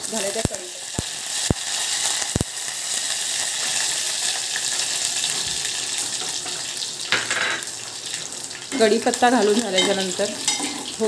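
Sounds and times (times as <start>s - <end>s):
garlic sizzling in hot oil: 0.0s - 11.0s.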